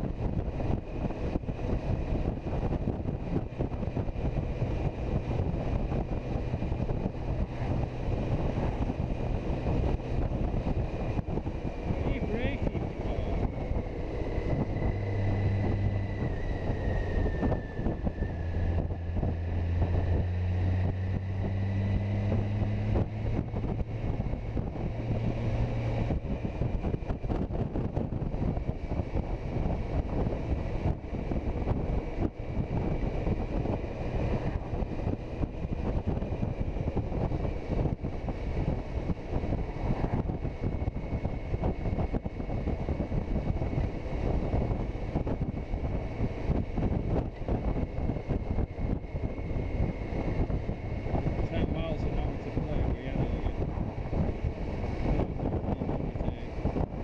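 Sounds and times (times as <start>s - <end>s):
motorcycle engine drone: 0.0s - 57.0s
wind rushing over microphone: 0.0s - 57.0s.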